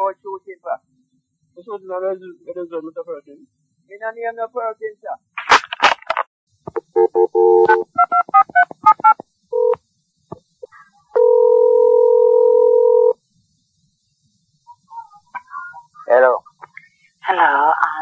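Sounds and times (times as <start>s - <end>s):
telephone ringing tone: 6.9s - 8.5s, 9.6s - 9.8s, 11.2s - 13.2s.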